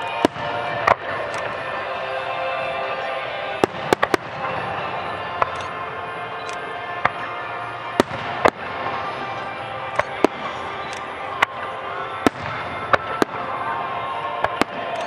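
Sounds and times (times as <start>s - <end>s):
fireworks bursting: 0.0s - 15.0s
music: 0.0s - 15.0s.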